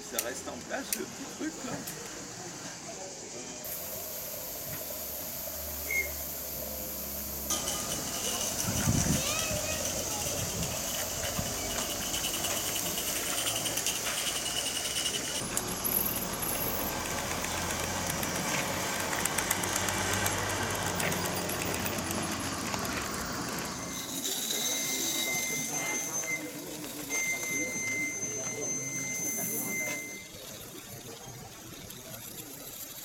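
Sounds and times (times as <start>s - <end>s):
model train wheels rolling on rails: 0.0s - 33.0s
hiss: 1.7s - 27.0s.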